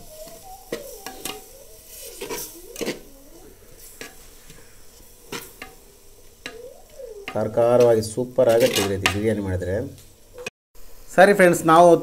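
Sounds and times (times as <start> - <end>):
faint sizzle of cooking: 0.0 - 12.0
spoon scraping clay pot: 7.8 - 9.2.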